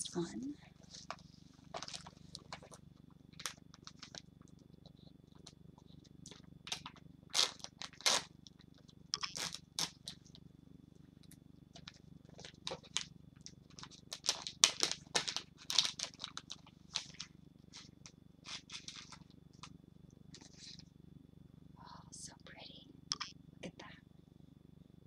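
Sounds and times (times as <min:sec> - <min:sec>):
low hum with high whine: 0:00.0 - 0:25.0
packaging crinkling and rustling: 0:00.8 - 0:04.6, 0:06.2 - 0:10.4, 0:11.7 - 0:19.7, 0:20.3 - 0:20.9.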